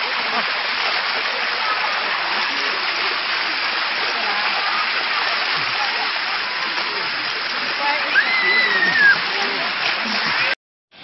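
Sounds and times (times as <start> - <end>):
faint voices: 0.0 - 10.6
waterfall rushing: 0.0 - 10.6.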